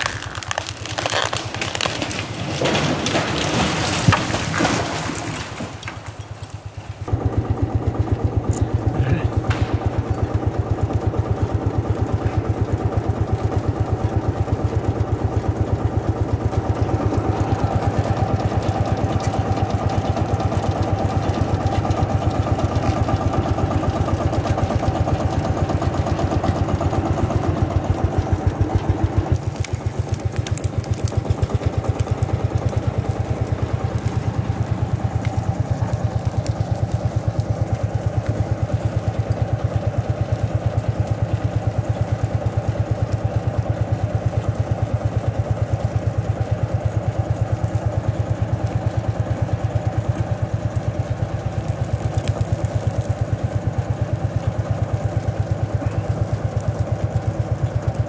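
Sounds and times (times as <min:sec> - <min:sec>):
tractor engine beating steadily: 0:00.0 - 0:58.0
cable winch rattling: 0:08.3 - 0:10.5.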